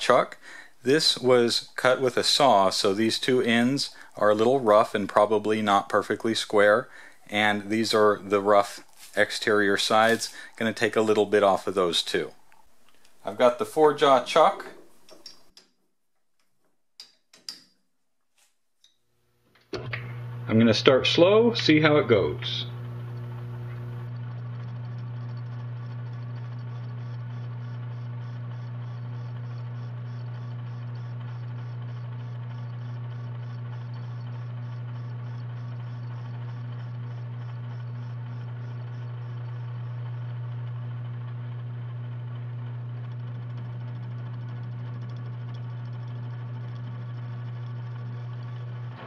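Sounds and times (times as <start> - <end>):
metal lathe humming: 0.8 - 12.3, 19.8 - 49.0.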